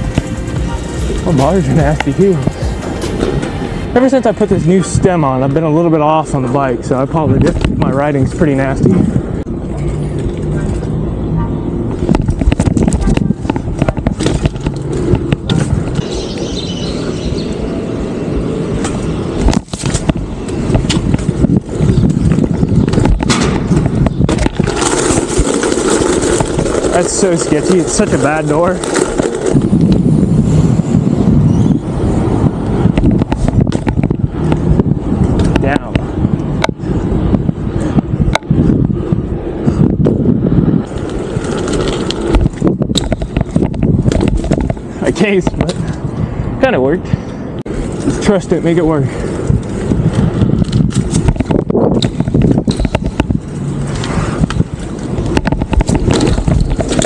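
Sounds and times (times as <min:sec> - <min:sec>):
bike tyre rumble on pavement: 0:00.0 - 0:57.0
bike knocks and clatters: 0:11.9 - 0:16.5, 0:18.8 - 0:31.3, 0:32.8 - 0:38.8, 0:40.8 - 0:46.0, 0:49.4 - 0:57.0.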